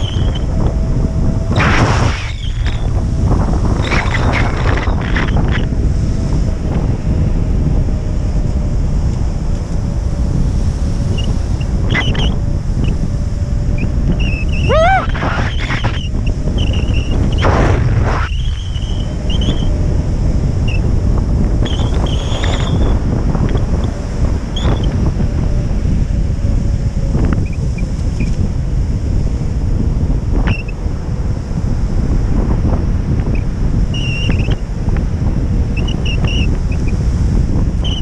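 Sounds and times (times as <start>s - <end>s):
wind buffeting microphone: 0.0s - 38.0s
short rising squeals: 1.5s - 3.0s, 13.7s - 19.8s.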